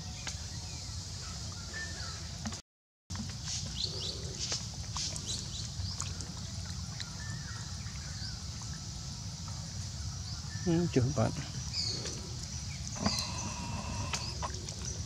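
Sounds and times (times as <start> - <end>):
high insect drone: 8.2 - 15.0
bird chirps: 10.4 - 15.0.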